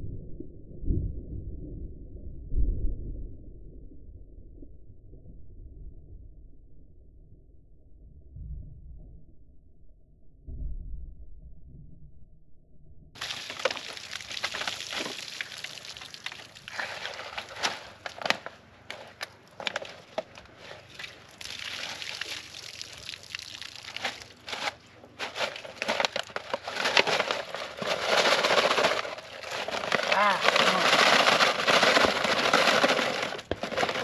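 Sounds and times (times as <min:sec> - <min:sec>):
plastic jugs crinkling: 0:13.2 - 0:34.0.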